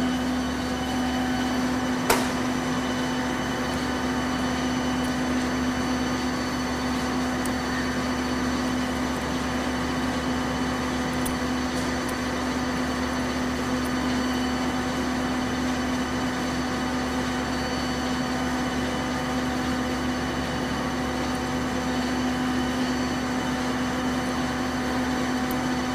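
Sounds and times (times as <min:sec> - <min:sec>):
mixer motor humming: 0:00.0 - 0:25.9.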